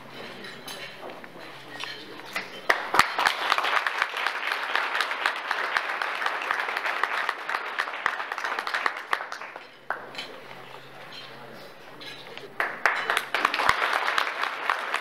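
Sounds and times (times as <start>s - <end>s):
audience applauding: 2.6s - 10.2s, 12.6s - 15.0s.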